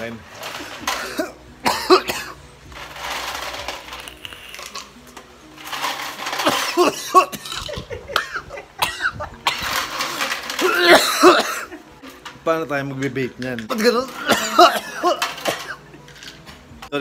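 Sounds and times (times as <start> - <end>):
man coughing: 1.0 - 2.4, 10.7 - 11.7, 14.2 - 15.7.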